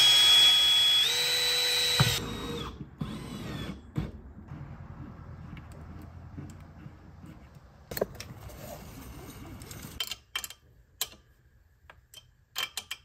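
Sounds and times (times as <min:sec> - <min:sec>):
wrench clicking on metal: 0:10.0 - 0:11.3, 0:11.9 - 0:13.0.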